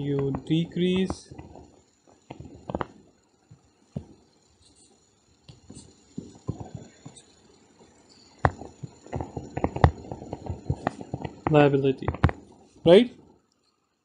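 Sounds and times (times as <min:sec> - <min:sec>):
stylus tapping and scratching: 0:00.0 - 0:03.0, 0:05.5 - 0:07.3, 0:08.3 - 0:12.8.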